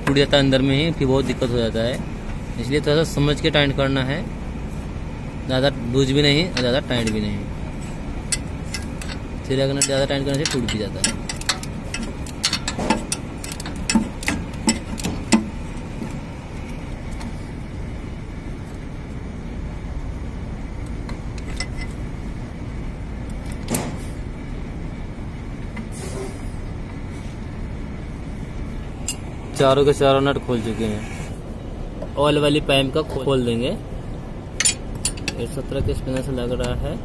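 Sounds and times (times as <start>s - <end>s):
low rumble of traffic: 0.0s - 37.0s
spanner clinking on metal bolts: 8.2s - 15.6s, 21.4s - 22.0s, 34.6s - 35.6s.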